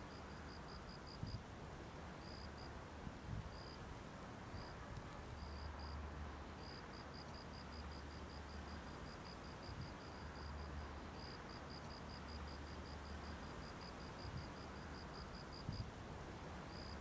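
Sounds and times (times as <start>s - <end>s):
insect chirping: 16.7s - 17.0s.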